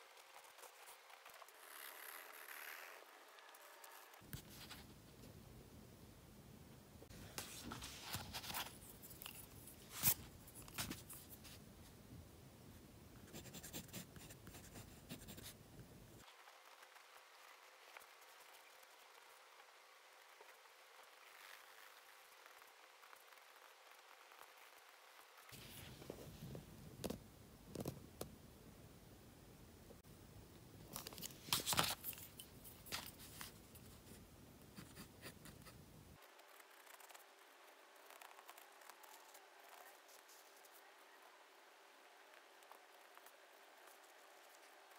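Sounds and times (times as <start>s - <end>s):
hand rustling on paper: 7.1s - 11.6s
pencil scratching on paper: 13.2s - 15.6s.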